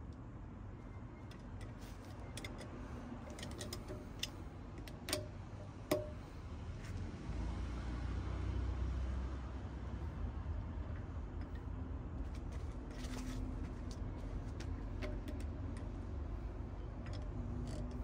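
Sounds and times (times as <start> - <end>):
ratchet wrench clicking: 17.0 - 18.0.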